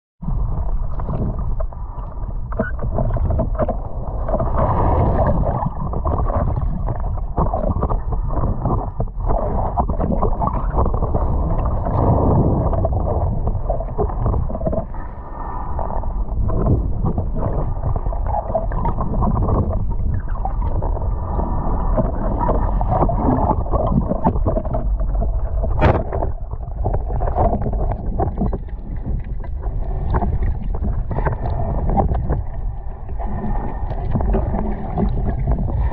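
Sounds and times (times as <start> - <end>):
muffled underwater sloshing: 0.2 - 35.9.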